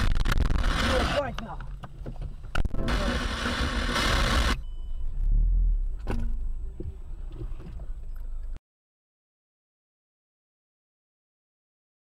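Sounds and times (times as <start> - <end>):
low car cabin rumble: 0.0 - 8.6.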